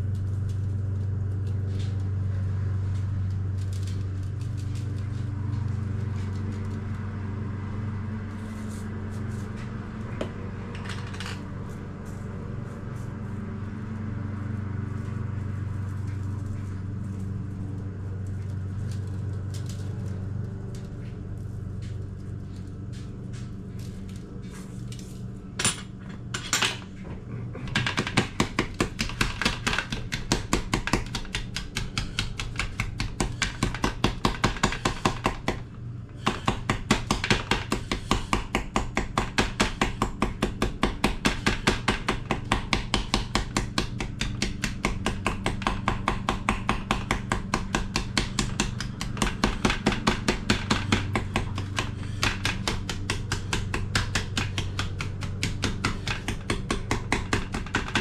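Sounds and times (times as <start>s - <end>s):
low hum: 0.0s - 30.7s
knife chopping on cutting board: 27.8s - 35.6s, 36.2s - 58.0s.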